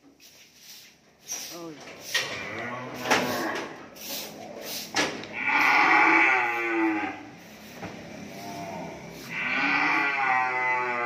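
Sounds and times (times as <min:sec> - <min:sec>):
cattle mooing: 0:02.4 - 0:03.7, 0:05.3 - 0:07.3, 0:08.2 - 0:11.0.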